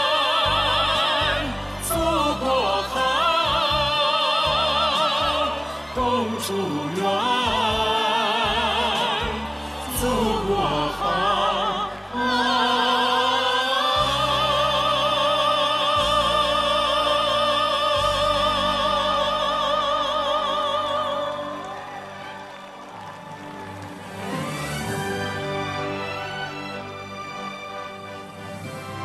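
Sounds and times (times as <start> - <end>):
person singing with vibrato: 0.0 - 21.8
orchestra playing: 0.0 - 29.0.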